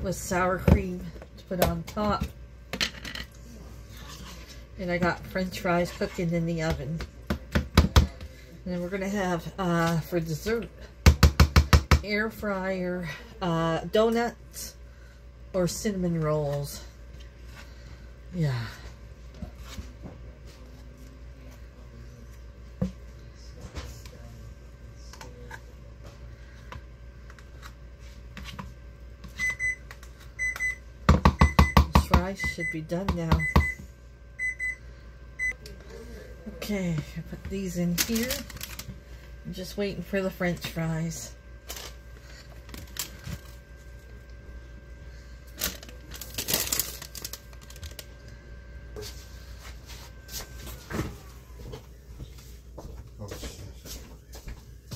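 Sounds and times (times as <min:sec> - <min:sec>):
appliance timer beeping: 0:29.3 - 0:35.7
paper liners crinkling: 0:37.9 - 0:38.9, 0:45.6 - 0:48.1.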